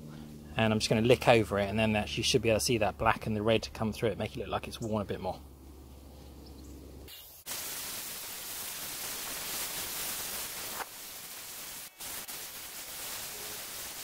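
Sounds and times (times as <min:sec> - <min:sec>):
spray gun hissing: 0:07.1 - 0:14.0.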